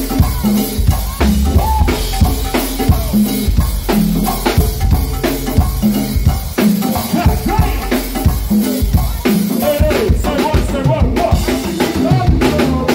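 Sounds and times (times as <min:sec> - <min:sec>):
drum kit: 0:00.0 - 0:12.9
hand-played congas: 0:00.0 - 0:12.9
live band music: 0:00.0 - 0:12.9.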